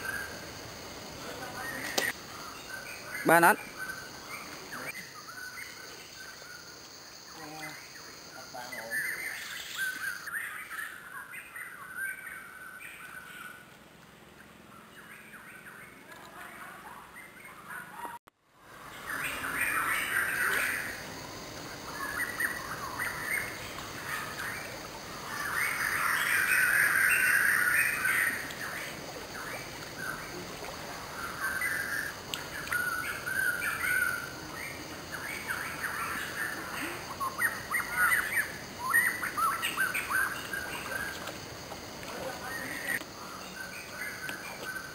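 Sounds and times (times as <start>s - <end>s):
birds chirping and calling: 21.9s - 41.4s.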